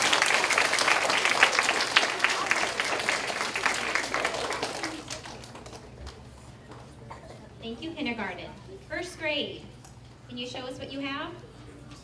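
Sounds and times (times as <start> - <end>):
children applauding: 0.0 - 6.2.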